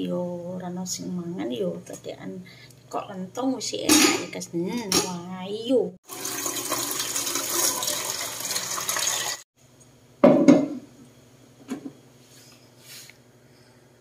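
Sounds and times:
water pouring into metal pot: 6.0 - 9.4.

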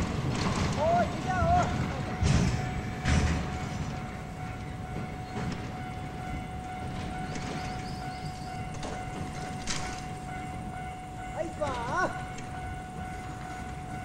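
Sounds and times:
heavy clunks of wagons: 0.0 - 4.1, 8.7 - 10.1
train wheels rumbling on rail: 0.0 - 14.0.

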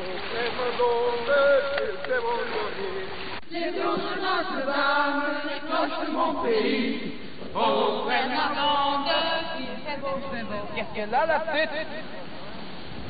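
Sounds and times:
group chanting in unison: 0.0 - 9.9.

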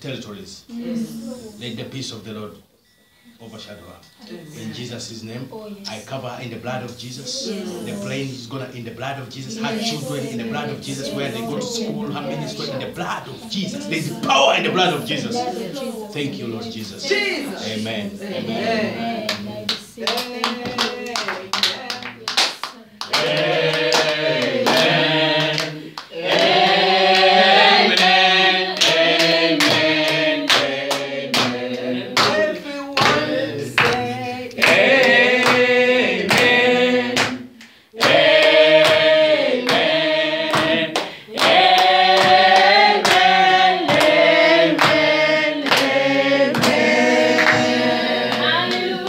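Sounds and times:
congregation singing: 2.8 - 49.0
hand-clapping: 19.2 - 48.9.

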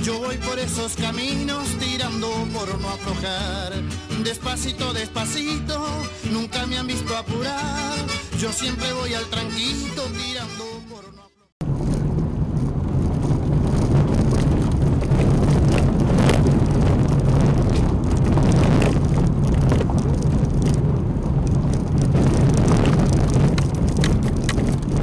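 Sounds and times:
knocks and rattles: 11.6 - 25.0
tyre rumble: 11.6 - 25.0.

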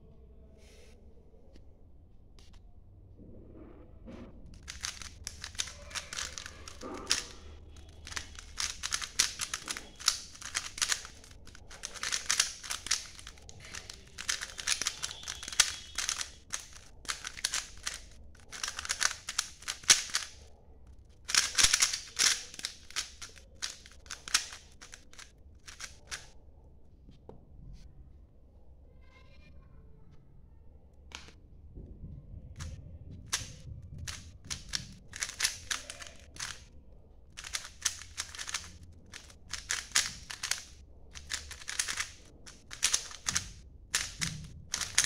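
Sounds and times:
puzzle cube plastic clicking: 4.6 - 20.5, 21.1 - 26.4, 32.6 - 36.7, 37.3 - 45.0.

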